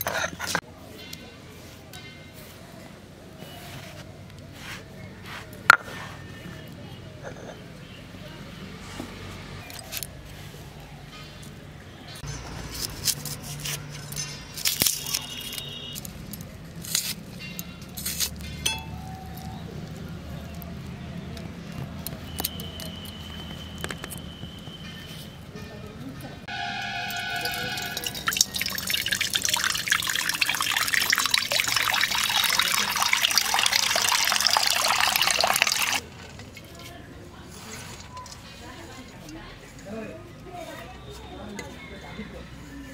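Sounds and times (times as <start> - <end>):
metallic ringing tone: 26.5 - 36.0
water pouring into metal pan: 26.5 - 36.3.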